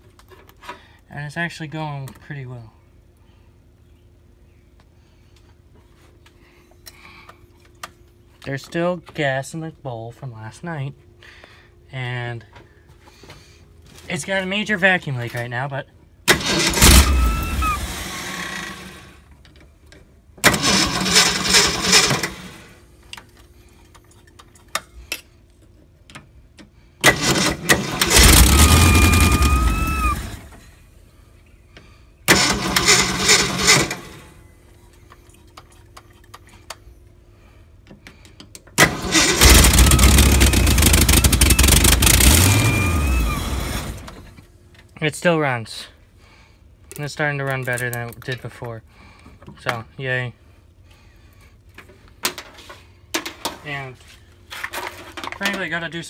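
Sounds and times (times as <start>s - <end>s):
car engine cranking and starting: 16.3s - 19.2s, 20.4s - 22.8s, 27.0s - 30.6s, 32.3s - 34.4s, 38.8s - 44.4s
engine squeal: 16.5s - 18.0s, 27.8s - 30.4s, 39.0s - 44.0s.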